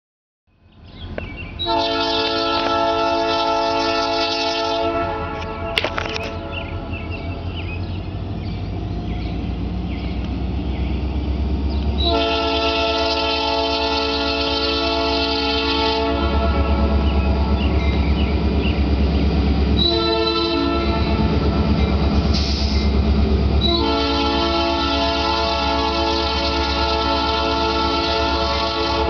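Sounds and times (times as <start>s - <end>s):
diesel engine rumble: 0.6s - 29.0s
locomotive air horn blasts: 1.6s - 6.9s, 12.0s - 17.5s, 19.8s - 21.4s, 23.6s - 29.0s.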